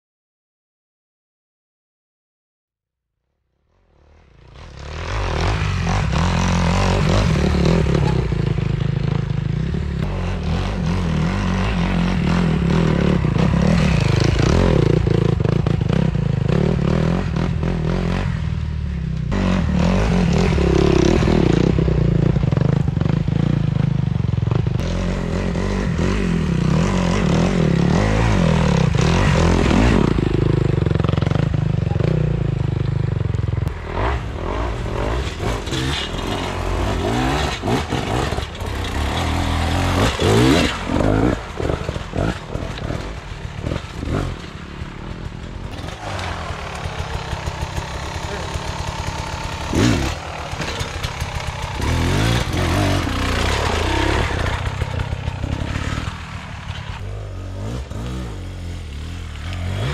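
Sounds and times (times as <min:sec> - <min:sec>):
motorcycle engines revving: 0:04.0 - 0:59.9
motorcycle knocks and rattles: 0:35.1 - 0:58.2.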